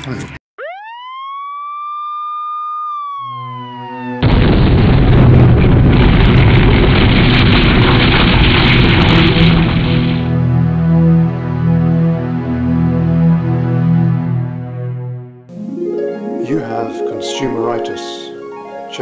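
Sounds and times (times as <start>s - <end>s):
siren-like wailing tone: 0.6s - 4.3s
loud explosion sound effect: 4.2s - 10.3s
held synthesizer notes: 10.3s - 19.0s.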